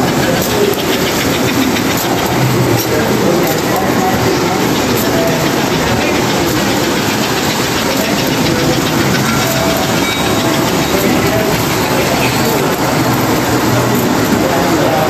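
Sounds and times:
model train motors whirring: 0.0 - 15.0
wheels rattling on track: 0.0 - 15.0.

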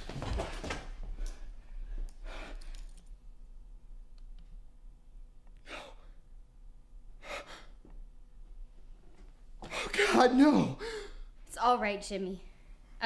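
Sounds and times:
person breathing heavily: 1.2 - 3.0, 5.6 - 6.2, 7.2 - 7.8, 10.8 - 11.4.

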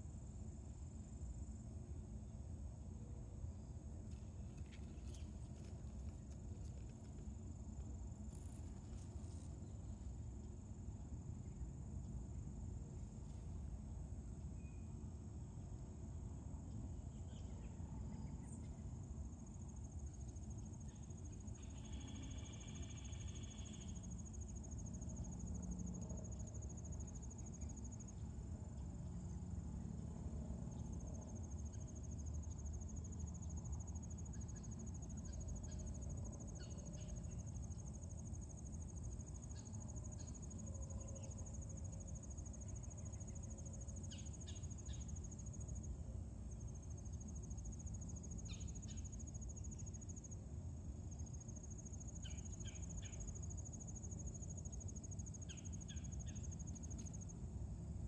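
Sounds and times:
insects trilling: 17.1 - 30.0, 30.6 - 58.0.

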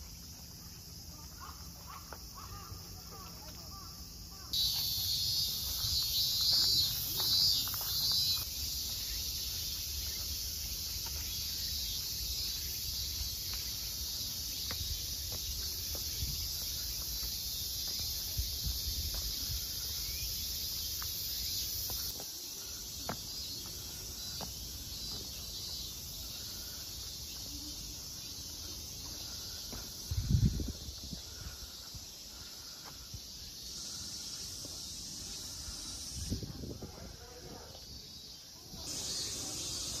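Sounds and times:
insects chorus: 0.0 - 40.0
wind rumble on microphone: 30.1 - 31.2, 36.2 - 37.2.

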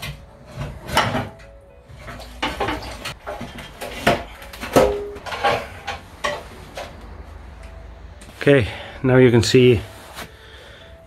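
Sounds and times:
metal clanking and knocking: 0.0 - 7.8.

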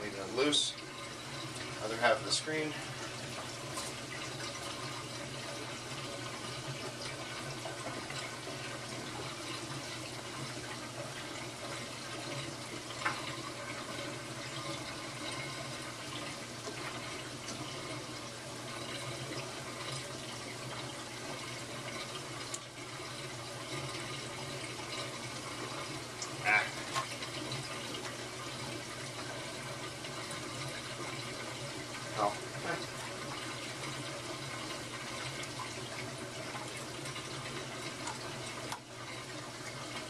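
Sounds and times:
aquarium water splashing: 0.0 - 40.0.

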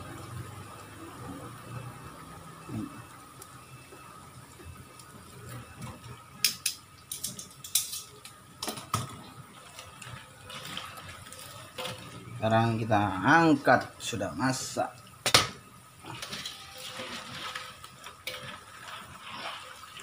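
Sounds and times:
oil sizzling in wok: 0.0 - 20.0
metal tongs clinking on wok: 6.4 - 8.8.

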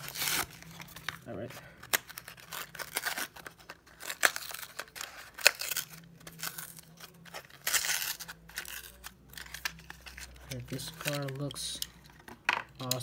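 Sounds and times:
cardboard tearing: 0.0 - 1.2, 1.8 - 10.4
plastic blister pack crinkling: 0.0 - 11.9.

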